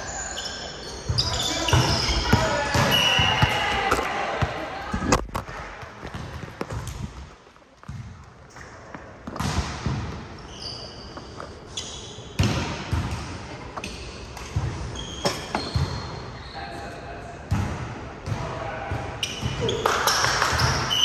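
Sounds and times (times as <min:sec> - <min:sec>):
sneaker squeaks on court floor: 0:00.0 - 0:03.9, 0:09.4 - 0:13.1, 0:13.8 - 0:16.8, 0:19.2 - 0:21.0
volleyball hits and thuds: 0:01.7 - 0:08.2, 0:09.2 - 0:10.3, 0:12.4 - 0:13.4.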